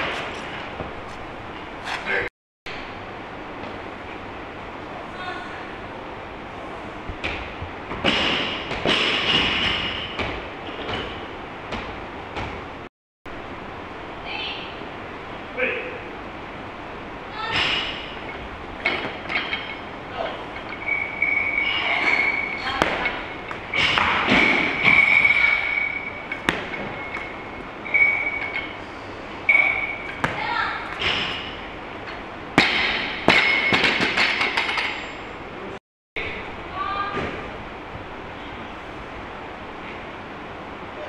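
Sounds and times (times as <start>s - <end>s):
high-pitched whine: 17.3s - 31.6s.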